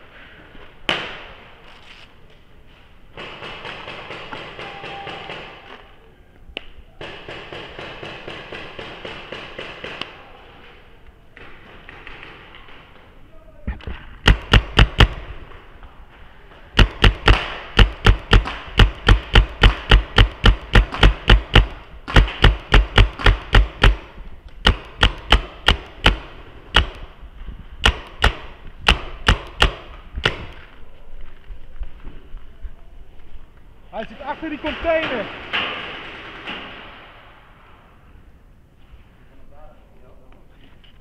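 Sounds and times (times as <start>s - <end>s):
paintball marker firing rapid shots: 7.0s - 10.2s, 11.4s - 12.9s, 14.2s - 15.4s, 16.8s - 27.1s, 27.8s - 30.6s.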